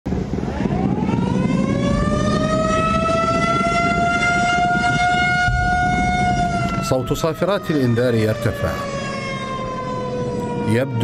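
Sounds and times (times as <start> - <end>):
low background rumble: 0.1 - 7.3
air raid siren wailing: 0.1 - 11.0.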